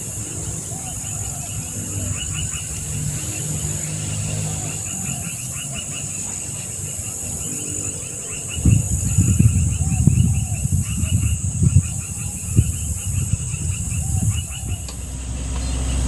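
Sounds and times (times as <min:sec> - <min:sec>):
insect chirps: 0:00.0 - 0:16.0
insects buzzing: 0:00.0 - 0:16.0
low hum: 0:12.4 - 0:16.0.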